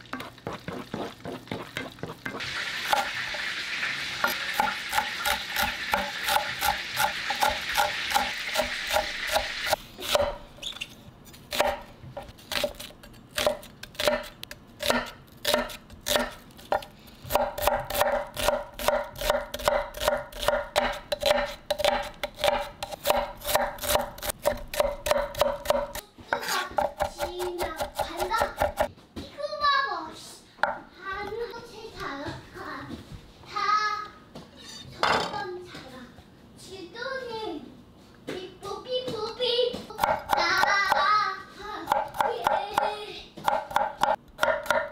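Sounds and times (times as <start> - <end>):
food sizzling in frying pan: 0.0 - 9.7
knife chopping on cutting board: 4.2 - 10.4, 11.5 - 28.9, 40.0 - 41.1, 41.9 - 44.9.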